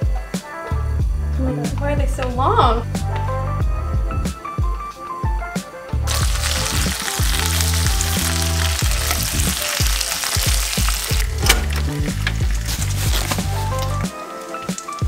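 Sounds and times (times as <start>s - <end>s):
bacon sizzling in pan: 6.1s - 15.0s.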